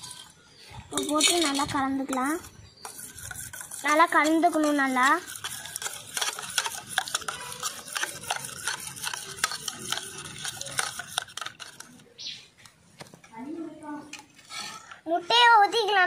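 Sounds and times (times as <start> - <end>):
spoon beating egg in steel bowl: 0.0 - 12.1.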